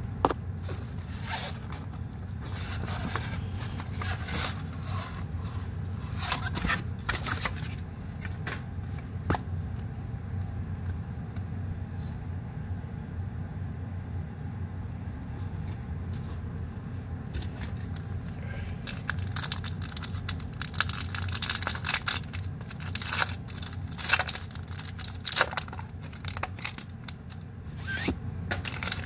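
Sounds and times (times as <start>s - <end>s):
steady low hum: 0.0s - 29.0s
plastic packaging rustling: 0.6s - 8.4s, 17.4s - 29.0s.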